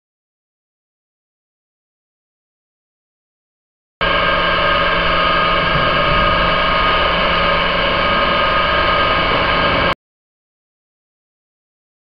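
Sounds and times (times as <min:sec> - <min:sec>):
flume pump whining hum: 0:04.0 - 0:10.0.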